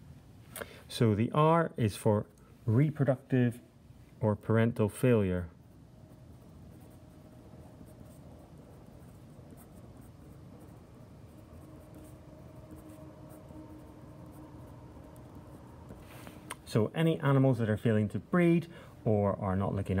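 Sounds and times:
faint steady hum: 0.0s - 20.0s
marker pen scratching on paper: 5.6s - 16.4s.

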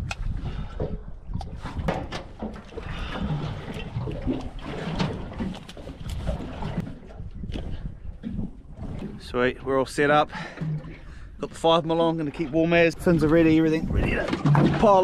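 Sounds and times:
water lapping against boat hull: 0.0s - 15.0s
dive gear knocking and rustling: 14.0s - 15.0s.

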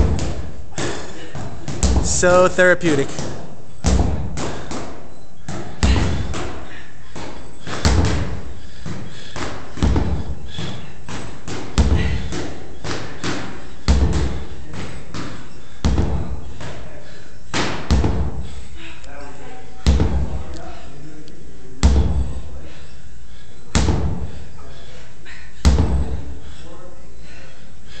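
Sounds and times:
sledgehammer thudding on rubber tire: 0.0s - 2.2s, 3.1s - 4.9s, 7.2s - 14.5s, 15.2s - 16.8s, 17.5s - 18.5s, 19.8s - 20.4s, 21.8s - 22.4s, 23.7s - 24.4s, 25.6s - 26.3s.

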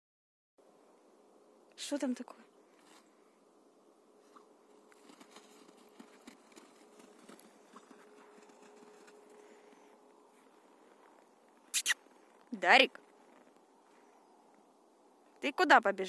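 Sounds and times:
faint steady hum: 0.6s - 16.0s
footsteps crunching in snow: 4.2s - 14.3s.

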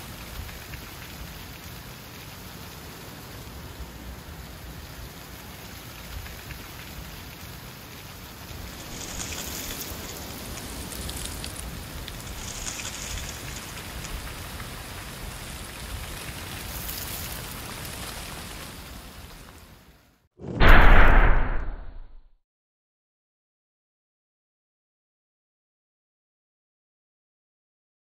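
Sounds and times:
leaves skittering on asphalt: 0.0s - 20.0s.

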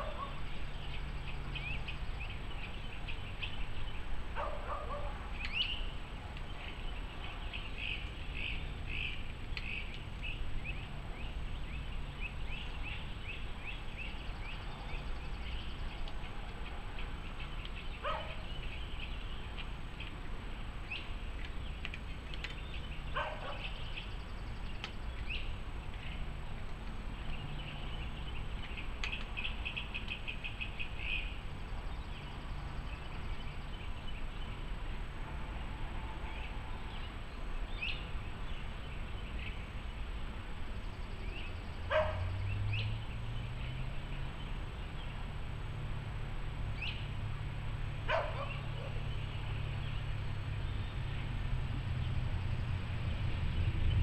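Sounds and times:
songbirds chirping and trilling: 0.0s - 54.0s.

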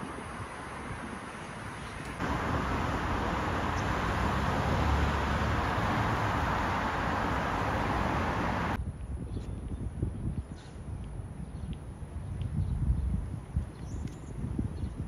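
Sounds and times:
road traffic passing: 0.0s - 8.8s
outdoor hush: 1.2s - 8.8s.

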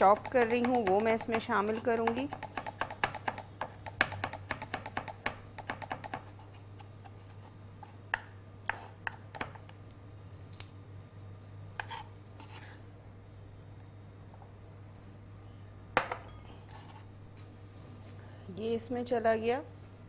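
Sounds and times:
knife chopping on wooden board: 0.0s - 7.2s
knife scraping board: 11.8s - 12.8s.

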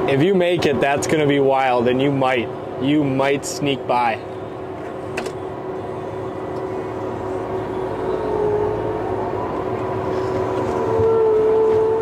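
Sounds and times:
combine harvester drone: 0.0s - 12.0s
machine whine: 3.8s - 12.0s.

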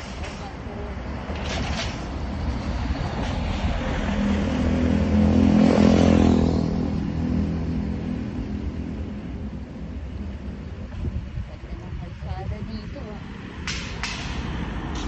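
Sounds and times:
truck engine passing: 0.0s - 10.7s.

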